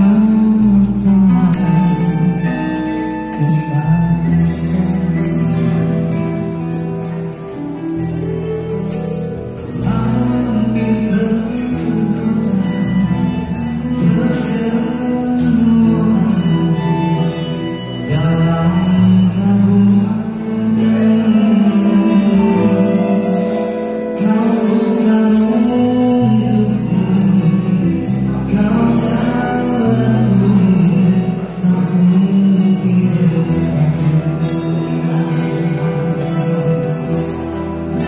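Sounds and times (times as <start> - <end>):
man singing into microphone: 0.0 - 7.4, 9.6 - 38.0
live band playing: 0.0 - 38.0.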